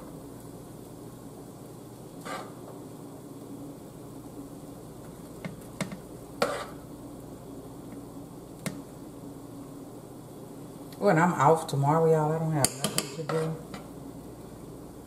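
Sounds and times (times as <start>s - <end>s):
steady low hum: 0.0s - 15.0s
metal spoon scraping a skillet: 2.2s - 2.6s, 6.4s - 6.8s, 12.6s - 13.9s.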